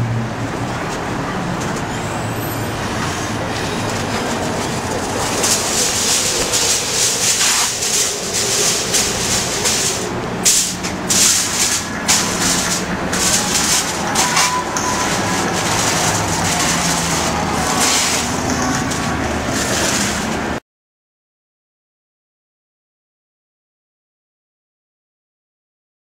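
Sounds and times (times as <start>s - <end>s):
low engine hum: 0.0s - 20.6s
aluminium foil crinkling: 3.9s - 20.4s.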